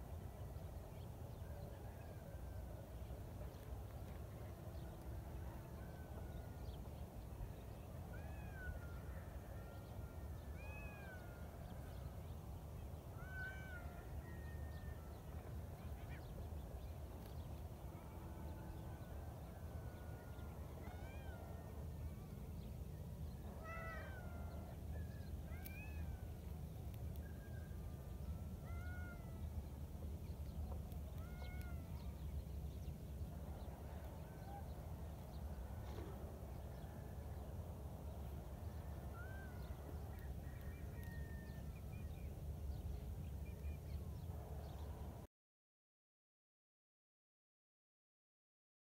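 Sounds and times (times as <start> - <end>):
cats meowing: 31.2 - 31.9.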